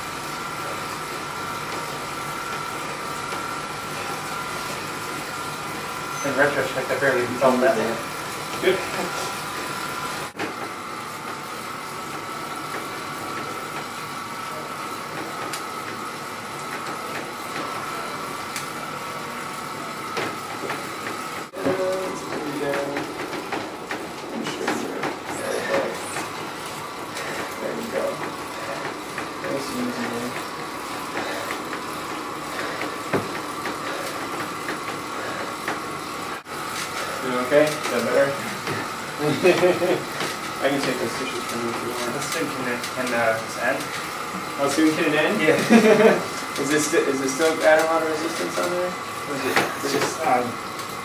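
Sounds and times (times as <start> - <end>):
bike trainer whining: 0.0 - 51.0
tyre spinning on roller: 20.1 - 42.2.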